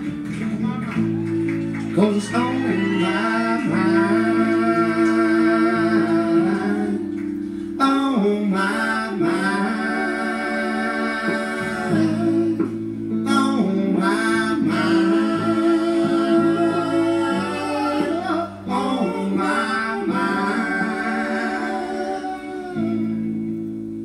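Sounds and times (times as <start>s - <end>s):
guitar accompaniment: 0.0s - 24.0s
person singing long notes: 2.0s - 23.6s.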